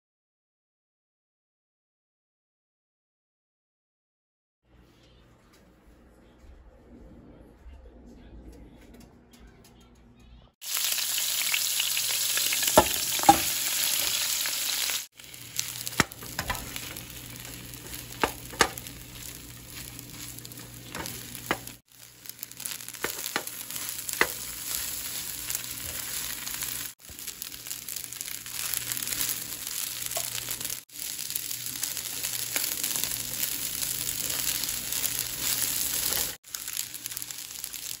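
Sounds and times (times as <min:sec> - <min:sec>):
fried rice sizzling in a pan: 0:10.6 - 0:38.0
spatula scraping and knocking pan: 0:15.9 - 0:21.8, 0:22.6 - 0:27.3.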